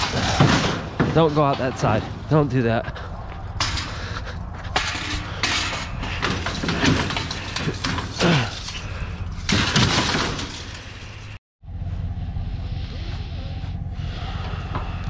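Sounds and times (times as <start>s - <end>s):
low engine hum: 0.0s - 9.7s, 10.6s - 15.0s
scrap metal clanking and scraping: 0.0s - 11.4s.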